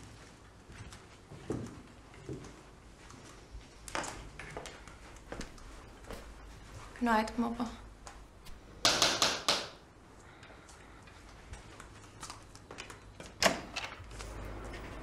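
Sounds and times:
sharp knocks: 8.8 - 9.8.

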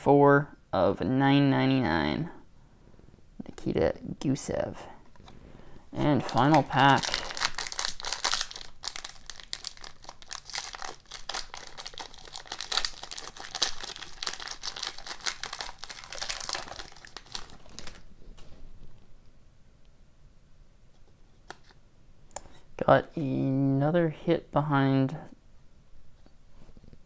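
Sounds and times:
foil wrapper crinkling and tearing: 6.0 - 18.1.

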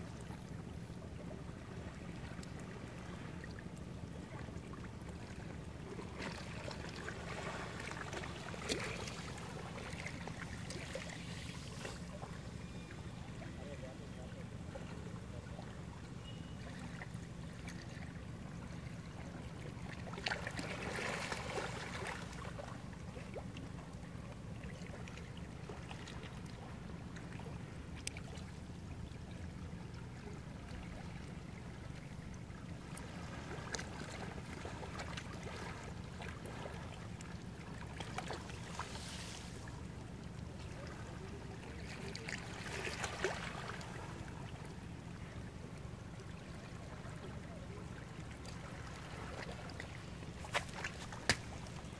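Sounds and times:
sea waves washing on shore: 38.0 - 39.8.

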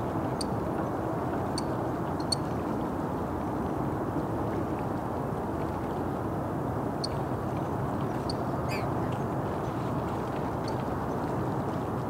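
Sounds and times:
short high bird calls: 8.7 - 8.9.

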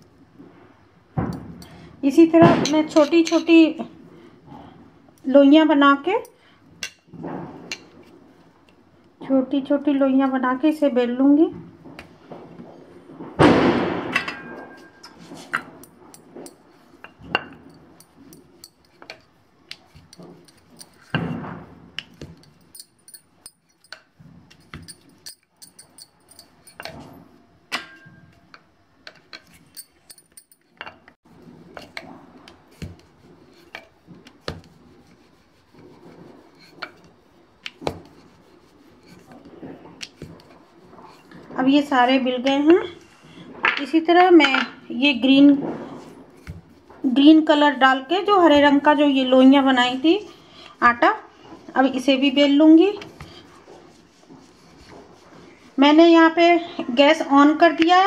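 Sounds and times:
brushing noises: 31.3 - 58.0.

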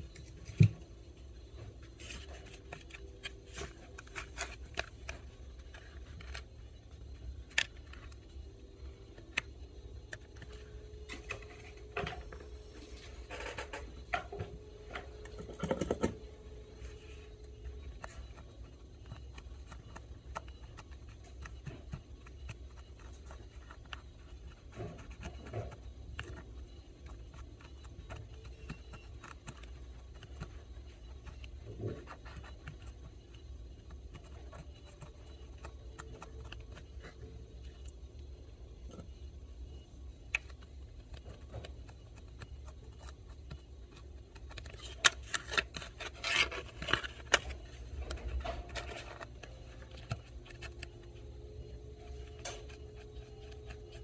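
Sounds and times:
low hum: 0.0 - 54.0
cotton swab scratching circuit board: 16.6 - 54.0.

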